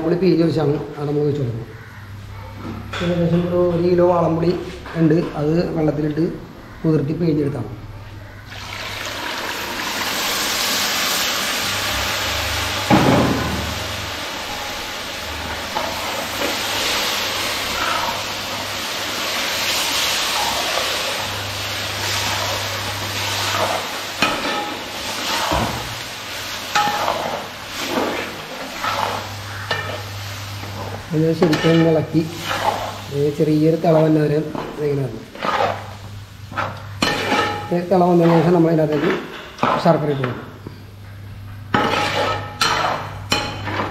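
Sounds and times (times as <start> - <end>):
liquid sizzling in hot pot: 8.5 - 39.8, 41.7 - 43.9.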